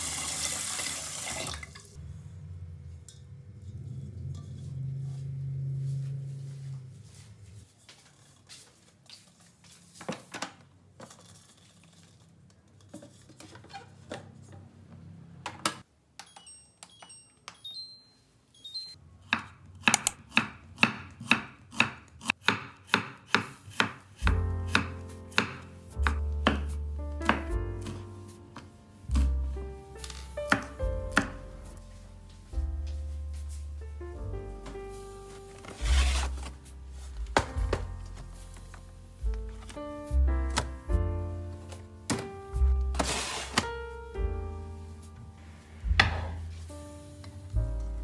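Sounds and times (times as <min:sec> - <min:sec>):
knife chopping on wooden board: 0:19.3 - 0:28.0, 0:30.5 - 0:31.4
music: 0:24.2 - 0:48.0.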